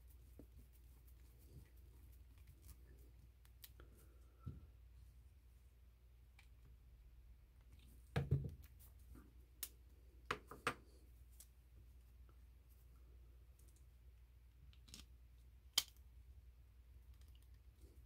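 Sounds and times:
small plastic parts clicking: 0:14.7 - 0:16.0, 0:17.0 - 0:17.8.

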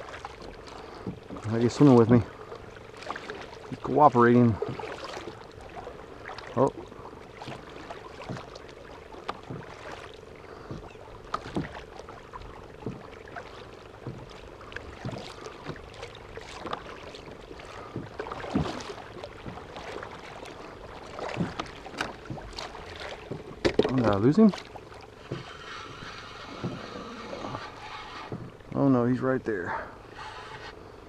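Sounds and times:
paddle knocking hull: 0:00.0 - 0:30.8
paddle splashing water: 0:00.0 - 0:31.0.

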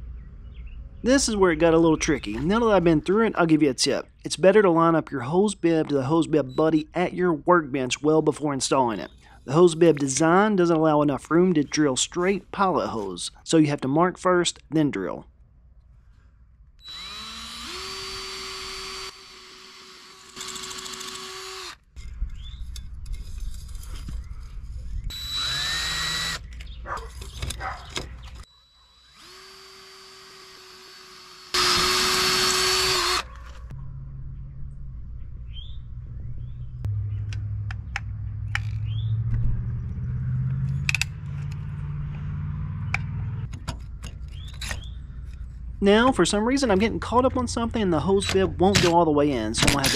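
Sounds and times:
drill drilling into brick: 0:16.8 - 0:21.9, 0:25.1 - 0:26.5, 0:28.8 - 0:33.3
low hum: 0:31.6 - 0:48.9.

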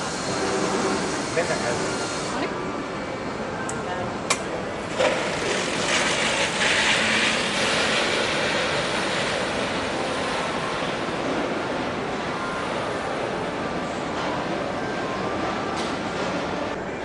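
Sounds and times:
factory hall rushing noise: 0:00.0 - 0:17.0.

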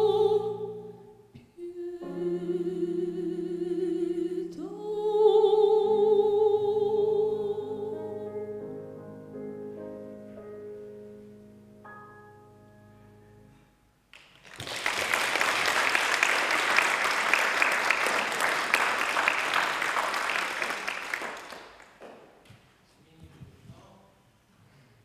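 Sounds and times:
audience applauding: 0:14.1 - 0:22.4.

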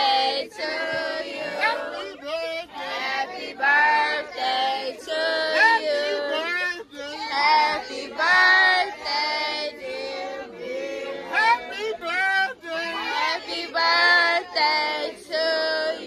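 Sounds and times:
group singing a cappella: 0:00.0 - 0:16.0.

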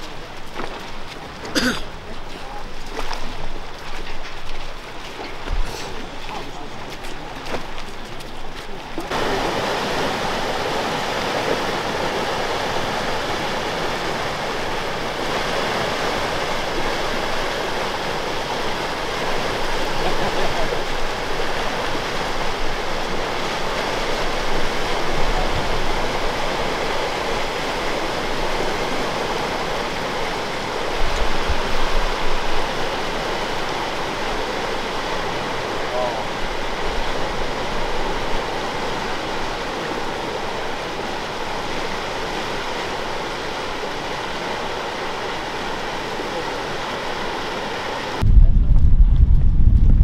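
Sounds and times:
river water rushing: 0:00.0 - 0:48.2
low rumbles: 0:48.2 - 0:50.0.

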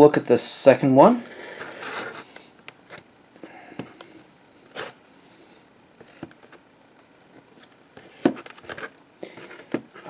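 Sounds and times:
plastic case rustling and clicking: 0:06.0 - 0:06.6, 0:07.3 - 0:10.0.

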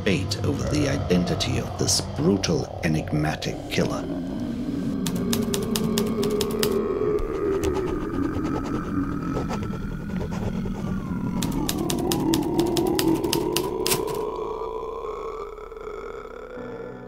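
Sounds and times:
steady low drone: 0:00.0 - 0:17.0
typewriter keystroke clicks: 0:05.0 - 0:06.8, 0:11.4 - 0:14.2.

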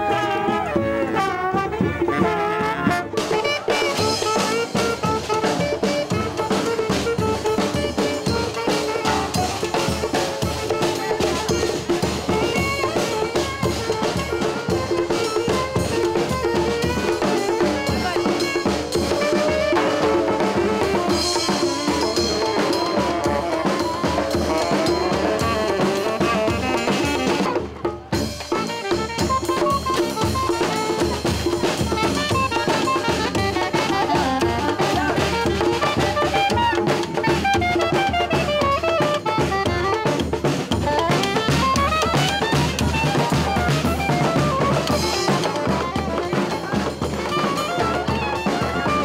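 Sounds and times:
soprano saxophone melody: 0:00.0 - 0:49.0
steady drum beat: 0:00.0 - 0:49.0
street brass band playing: 0:00.0 - 0:49.0.

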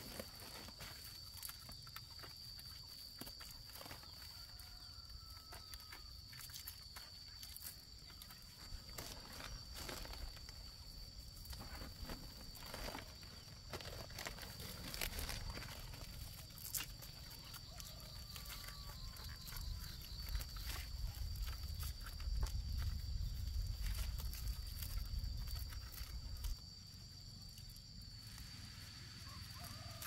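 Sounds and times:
plastic sack rustling and crinkling: 0:00.0 - 0:01.3, 0:08.6 - 0:16.8
high insect drone: 0:00.0 - 0:30.0.

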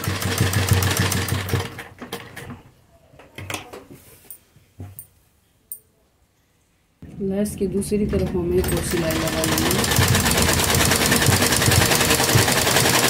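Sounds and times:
sewing machine stitching: 0:00.0 - 0:02.4, 0:08.6 - 0:13.0.

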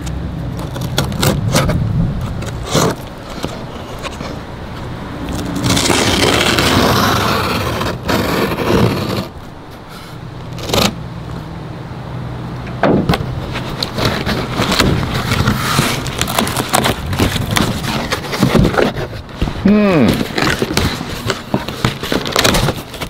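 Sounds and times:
tape tearing: 0:00.5 - 0:04.4, 0:05.3 - 0:09.3, 0:10.4 - 0:11.0, 0:13.1 - 0:23.0
cardboard crackling: 0:00.5 - 0:09.4, 0:10.4 - 0:11.0, 0:12.9 - 0:23.0
knife scraping along tape: 0:00.6 - 0:04.4, 0:05.3 - 0:09.3, 0:10.0 - 0:11.0, 0:13.5 - 0:19.2.

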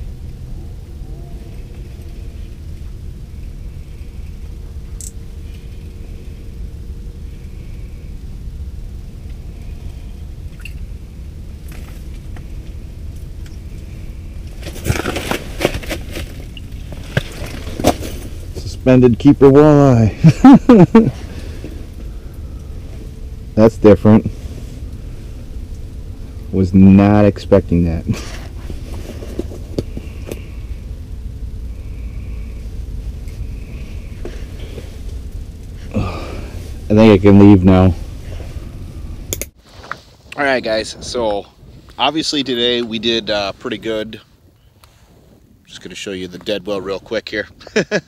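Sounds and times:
steady low rumble: 0:00.0 - 0:48.0
crackles splashes and knocks: 0:10.4 - 0:11.0, 0:14.4 - 0:18.6.

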